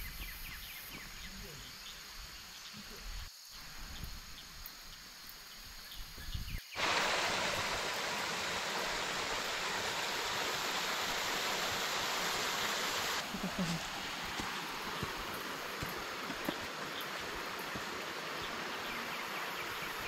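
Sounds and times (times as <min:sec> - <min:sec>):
mountain stream over rocks: 0:06.8 - 0:20.0.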